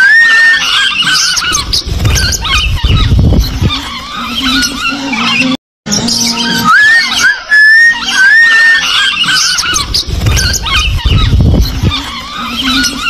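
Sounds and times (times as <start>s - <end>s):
bird whistling: 0.0s - 13.0s
birds chirping: 0.0s - 13.0s
low rumble: 9.8s - 12.0s.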